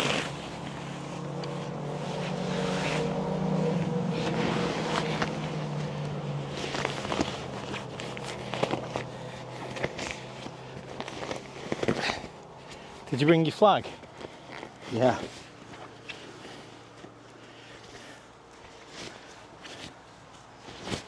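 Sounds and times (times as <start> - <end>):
vehicle engine droning: 0.0 - 21.0
clicks and knocks of gear handled: 6.6 - 12.9.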